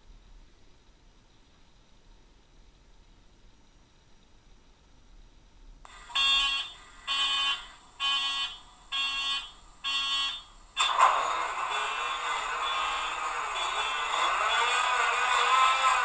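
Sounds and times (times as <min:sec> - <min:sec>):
electronic beeps: 0:06.1 - 0:16.0
diesel engine sound from speaker: 0:10.8 - 0:16.0.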